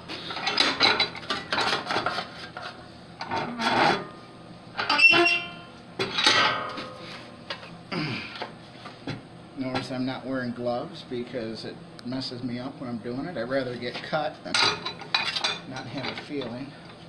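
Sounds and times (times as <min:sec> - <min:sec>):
metal scraping on metal: 0:01.4 - 0:04.1, 0:04.8 - 0:07.2.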